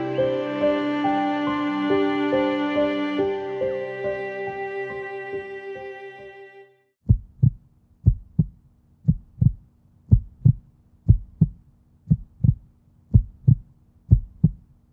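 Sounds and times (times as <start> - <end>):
heartbeat thumps: 7.0 - 14.7.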